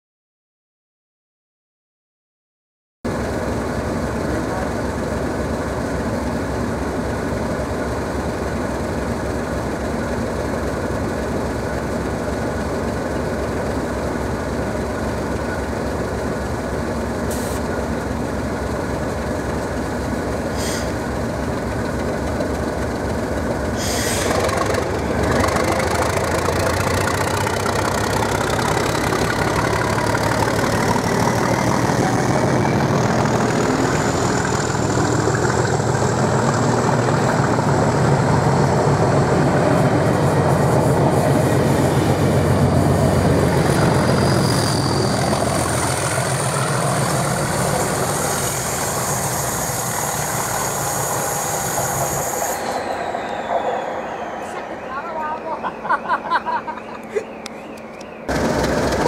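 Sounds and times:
diesel locomotive engines running hard: 0:03.1 - 0:59.0
turbocharger whistle rising: 0:23.8 - 0:56.8.

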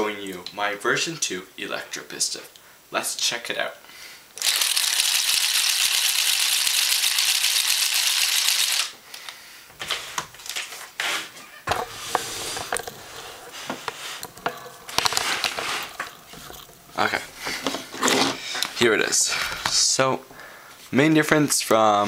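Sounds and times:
cranked piston rattling: 0:04.4 - 0:08.9
handling clicks and knocks: 0:11.7 - 0:18.8.

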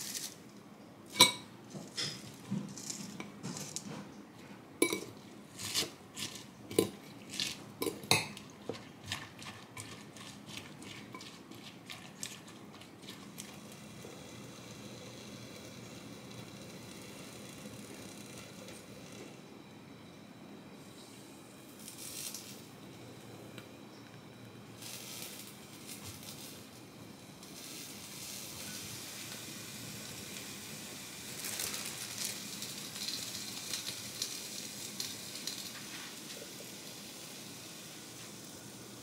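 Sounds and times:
fork clinking against glass bowl: 0:04.8 - 0:05.1
faint steady hiss: 0:13.2 - 0:39.0.

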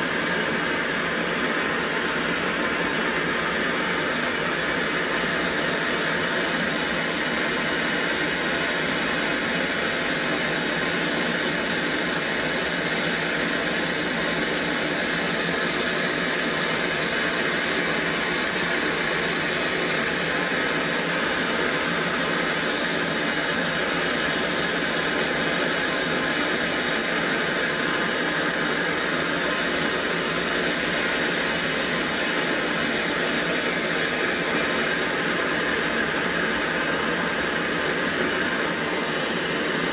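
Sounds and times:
gas torch hissing: 0:00.0 - 0:39.9.

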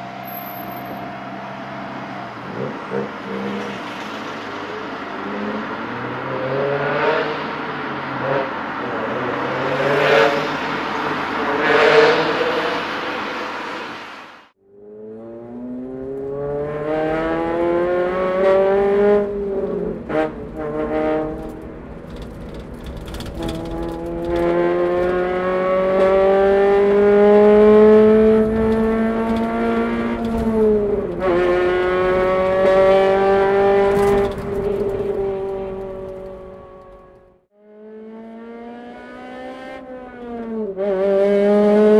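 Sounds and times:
car engine revving hard: 0:15.1 - 0:21.7, 0:23.2 - 0:37.2, 0:37.9 - 0:41.9.

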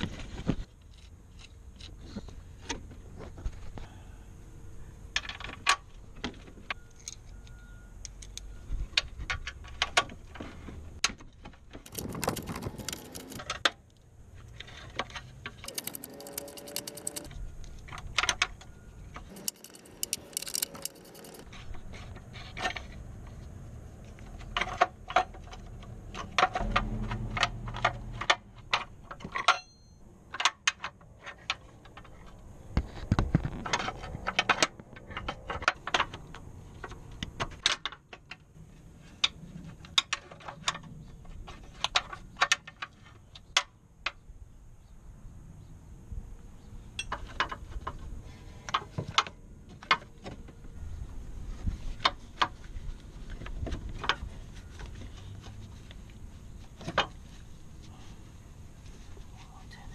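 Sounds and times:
tools clicking on plastic: 0:11.8 - 0:13.7, 0:15.6 - 0:17.3, 0:19.2 - 0:21.4.

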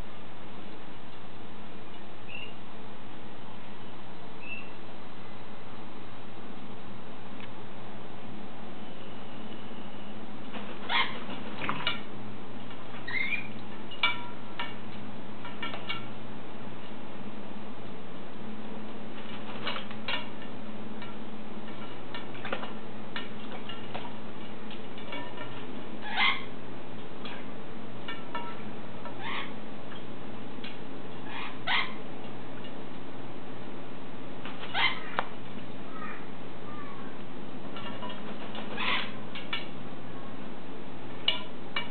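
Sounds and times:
steady low hum: 0:00.0 - 0:41.9
parrot squeaking and chirping: 0:02.3 - 0:02.6, 0:04.4 - 0:04.8, 0:10.8 - 0:12.0, 0:13.0 - 0:14.4, 0:26.0 - 0:26.5, 0:29.2 - 0:29.6, 0:31.2 - 0:32.0, 0:34.6 - 0:35.2, 0:38.6 - 0:39.2
parrot calls falling in pitch: 0:34.7 - 0:35.2.

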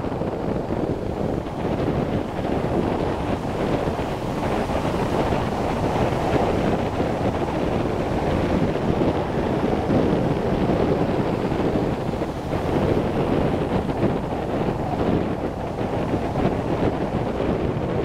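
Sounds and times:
wind rushing across microphone: 0:00.0 - 0:18.0.

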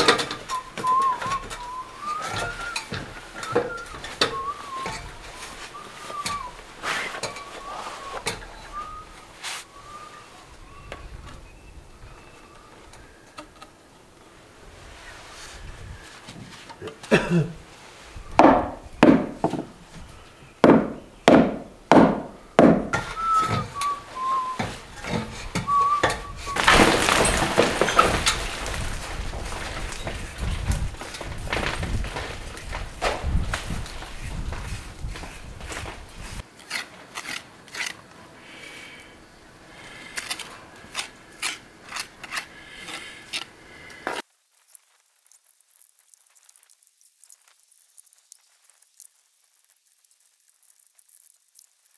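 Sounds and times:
hand tool scraping stone joints: 0:00.0 - 0:09.7, 0:22.9 - 0:38.0, 0:39.9 - 0:44.2
steady hiss: 0:00.0 - 0:26.7, 0:37.4 - 0:51.9
person whistling notes: 0:00.5 - 0:10.3, 0:23.0 - 0:24.8, 0:25.6 - 0:26.6
hammer striking stones: 0:20.6 - 0:23.1, 0:26.6 - 0:28.4.

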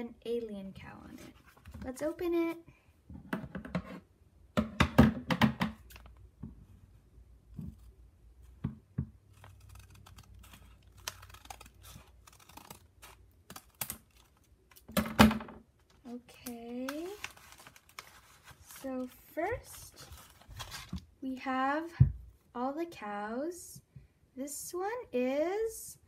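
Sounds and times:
paper rustling: 0:15.8 - 0:21.1.

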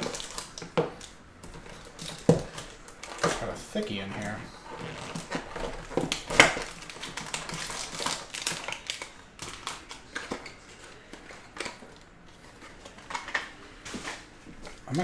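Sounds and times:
clicks and scrapes of pack: 0:04.7 - 0:14.8.

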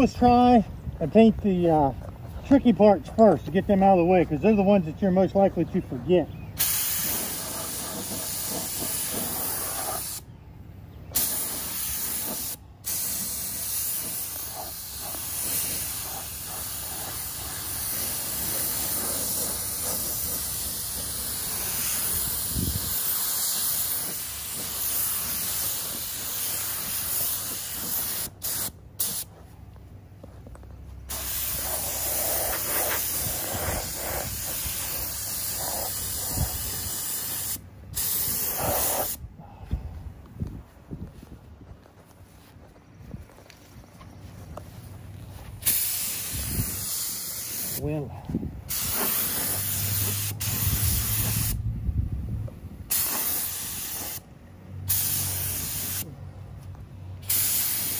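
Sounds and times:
spray gun hissing: 0:06.6 - 0:10.2, 0:11.2 - 0:29.3, 0:31.1 - 0:39.2, 0:45.6 - 0:48.0, 0:48.7 - 0:51.6, 0:52.9 - 0:54.2, 0:54.9 - 0:56.1, 0:57.2 - 0:57.9.

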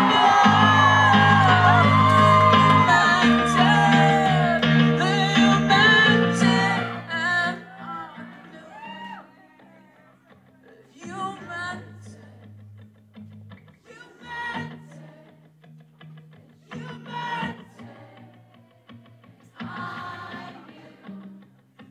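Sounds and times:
man singing: 0:00.0 - 0:08.8, 0:13.8 - 0:15.2, 0:16.5 - 0:18.1
acoustic guitar: 0:00.0 - 0:21.9.

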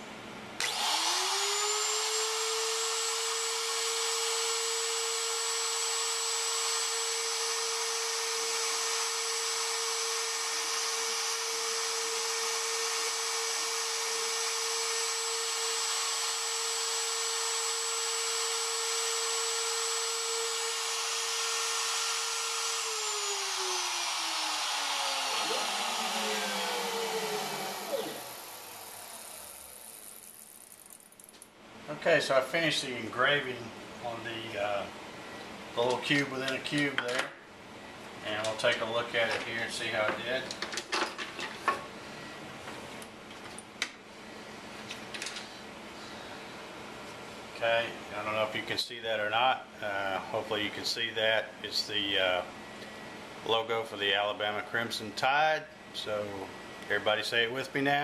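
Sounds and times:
router motor whining: 0:00.6 - 0:31.0.

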